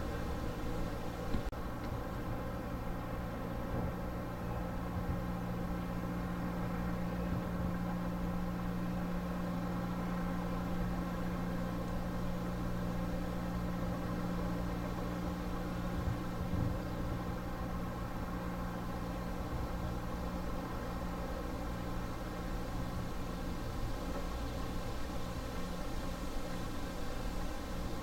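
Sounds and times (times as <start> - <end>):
engine humming steadily: 0.0 - 28.0.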